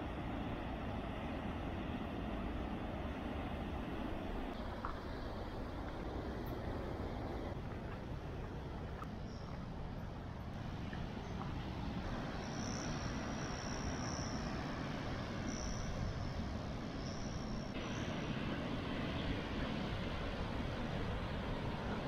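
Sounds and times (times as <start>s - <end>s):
ocean surf breaking: 17.8s - 22.0s.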